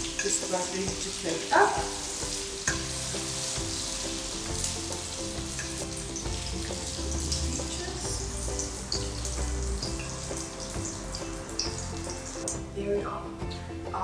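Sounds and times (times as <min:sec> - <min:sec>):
caramel syrup sizzling in a pan: 0:00.0 - 0:14.0
soft background music: 0:00.0 - 0:14.0
spoon scraping and clicking in pan: 0:02.6 - 0:02.9, 0:05.5 - 0:05.8.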